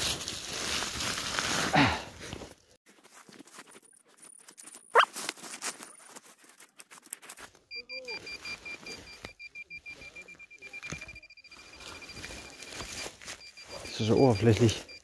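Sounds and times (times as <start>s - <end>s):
metal detector pulsing beep: 7.7s - 15.0s.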